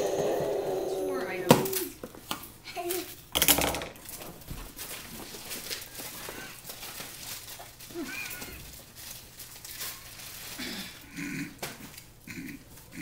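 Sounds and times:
packaging rustling and crinkling: 4.0 - 11.0.

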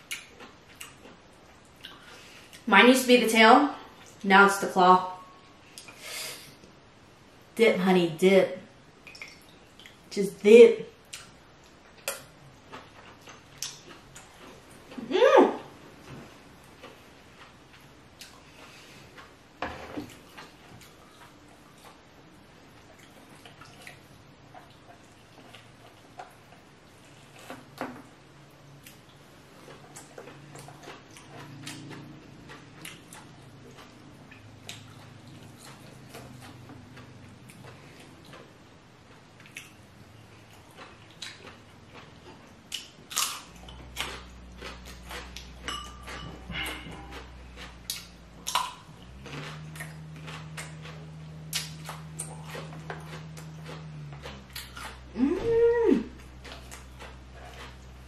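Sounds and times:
person chewing: 0.0 - 2.6, 11.0 - 15.1, 15.7 - 27.8, 28.6 - 58.0
person humming mm: 55.1 - 56.2.

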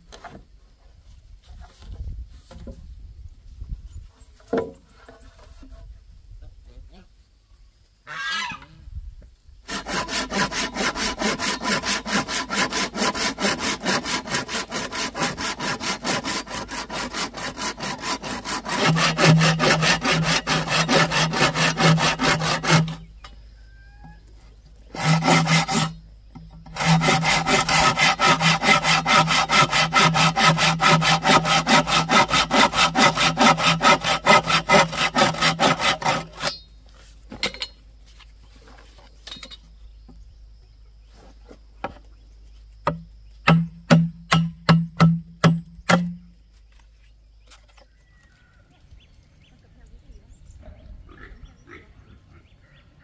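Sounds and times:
hand saw cutting wood: 9.7 - 23.1, 24.9 - 36.7.

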